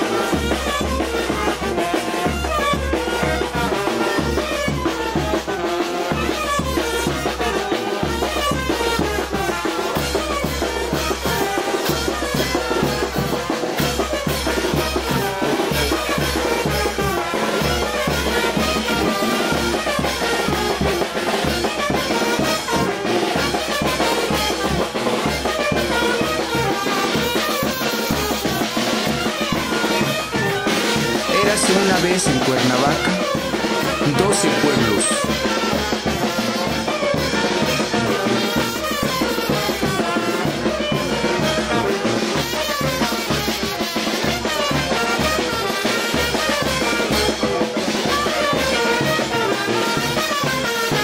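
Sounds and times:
brass band playing dance tune: 0.0 - 51.0.

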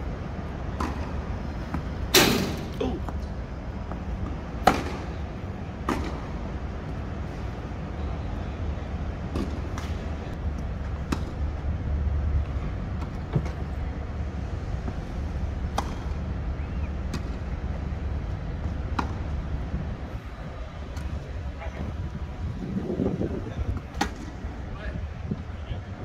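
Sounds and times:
tennis balls hit by rackets: 0.7 - 6.4, 9.3 - 11.5, 15.6 - 17.6, 18.6 - 19.4, 23.7 - 24.6
wind rumble on microphone: 10.1 - 26.0.

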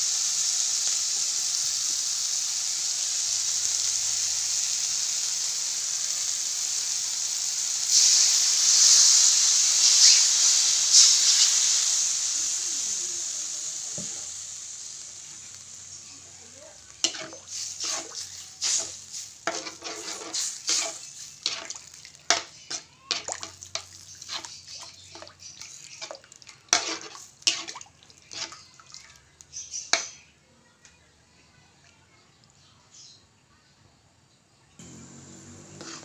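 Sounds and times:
hot liquid hissing in a wok: 0.0 - 30.1, 34.8 - 36.0
metal spoon scraping a pan: 17.0 - 28.6, 35.8 - 36.0.

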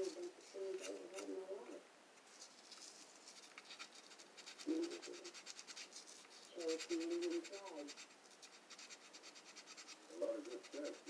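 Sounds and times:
sandpaper rubbing on plastic: 3.3 - 11.0.

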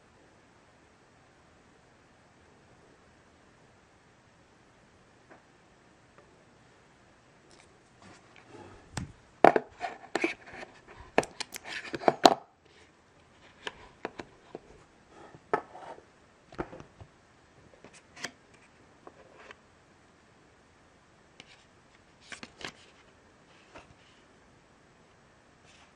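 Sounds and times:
soft rustles: 7.5 - 11.9.

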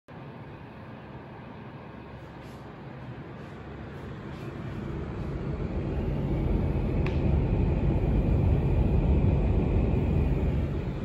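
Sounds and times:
air conditioner fan blowing: 0.1 - 11.0
faint high whine: 0.1 - 11.0
air conditioner click: 6.8 - 7.5.

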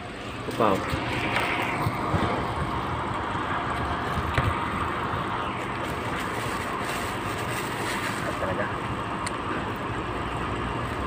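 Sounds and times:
plastic bag crinkling: 5.7 - 8.6.

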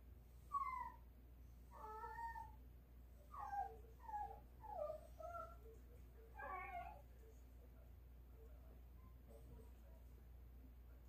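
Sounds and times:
dog whining: 0.5 - 1.0, 1.7 - 2.6, 3.3 - 5.6, 6.4 - 7.0.

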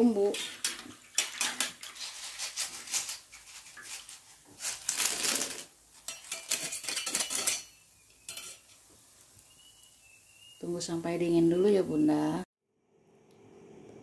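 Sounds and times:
metal strainer clinking against wok: 6.1 - 8.8.

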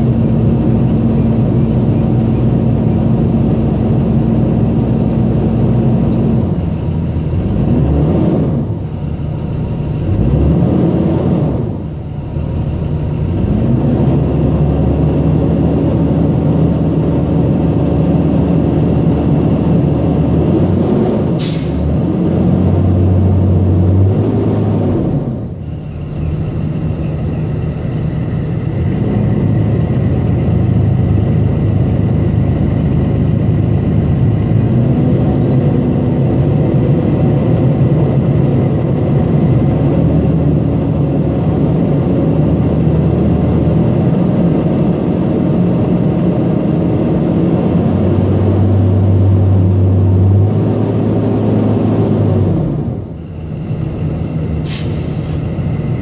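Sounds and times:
diesel engine idling and revving: 0.0 - 56.0
air brake hiss: 21.4 - 22.1, 54.6 - 55.6.

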